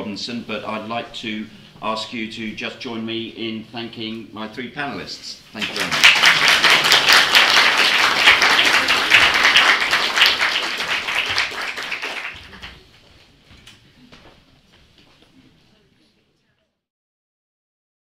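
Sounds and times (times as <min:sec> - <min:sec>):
audience applauding: 0:05.6 - 0:12.9.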